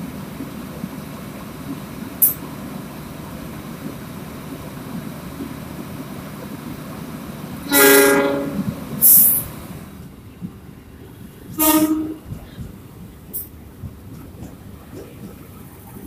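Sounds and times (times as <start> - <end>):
passing electric train: 0.0 - 16.0
train horn blasts: 7.6 - 9.4, 11.5 - 12.4
short hiss: 9.0 - 9.5.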